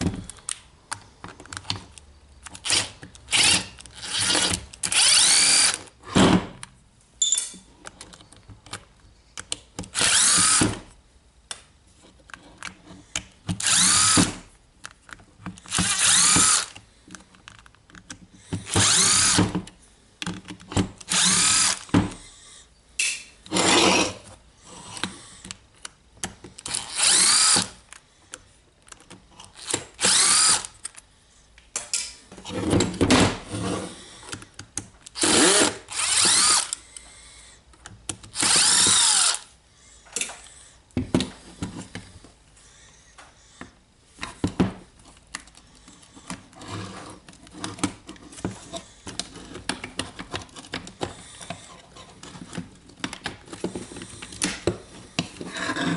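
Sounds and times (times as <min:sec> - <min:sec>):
impact driver whining bursts: 0:02.6 - 0:05.8, 0:10.0 - 0:10.8, 0:13.6 - 0:14.4, 0:15.7 - 0:16.8, 0:18.7 - 0:19.5, 0:21.1 - 0:21.9, 0:26.7 - 0:27.8, 0:29.6 - 0:30.8, 0:35.2 - 0:36.8, 0:38.3 - 0:39.5.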